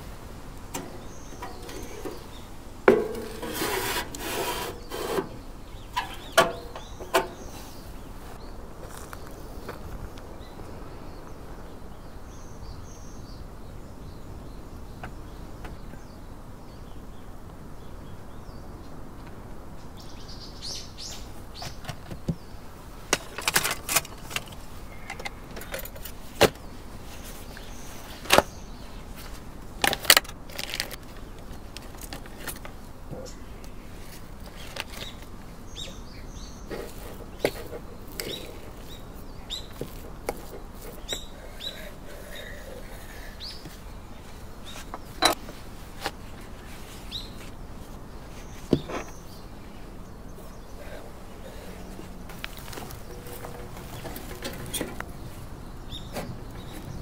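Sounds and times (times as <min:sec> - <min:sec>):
rustling scrape: 0:00.9 - 0:06.2, 0:36.6 - 0:41.2
faint bird chirps: 0:34.5 - 0:45.3.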